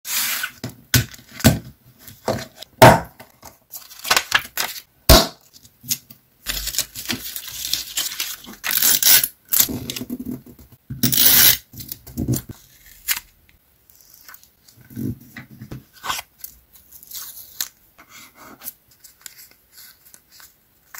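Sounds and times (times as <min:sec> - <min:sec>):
paper rustling and crinkling: 0:03.4 - 0:04.9, 0:06.5 - 0:08.9.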